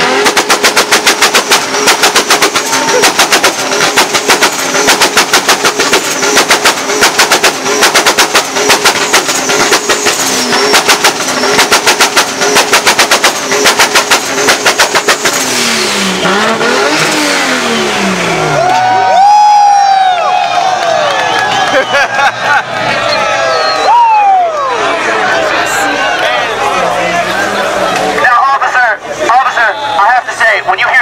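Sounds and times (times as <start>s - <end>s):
rapid exhaust bangs: 0.0s - 18.6s
car engine revving: 0.0s - 19.2s, 24.6s - 29.4s.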